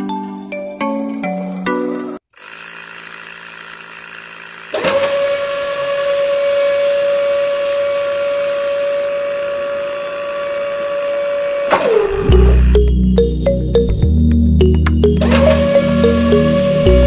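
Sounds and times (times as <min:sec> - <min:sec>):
small motor whining: 0:02.3 - 0:12.8, 0:15.1 - 0:17.0.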